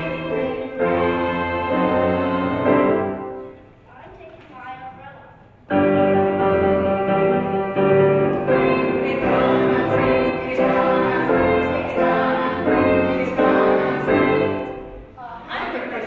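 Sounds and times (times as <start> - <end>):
children's choir singing: 0.0 - 3.4, 7.8 - 15.1
piano accompaniment: 0.0 - 3.8, 5.7 - 15.2.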